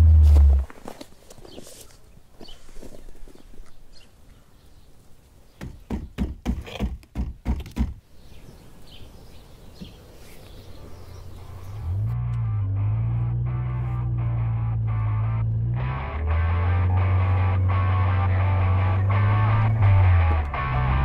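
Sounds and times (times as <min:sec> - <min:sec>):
music: 0:12.2 - 0:21.0.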